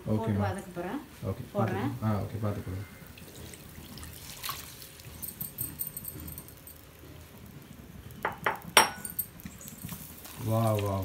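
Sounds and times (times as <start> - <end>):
liquid splashing and trickling: 3.1 - 6.0, 9.4 - 11.0.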